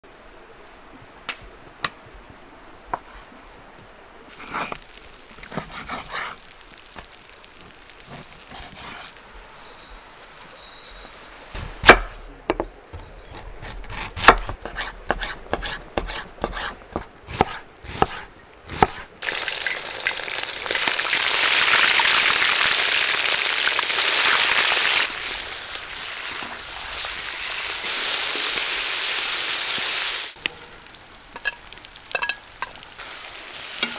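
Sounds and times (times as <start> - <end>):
onions sizzling in a pot: 4.3 - 11.9, 19.2 - 33.9
knife chopping on wooden board: 13.0 - 19.0.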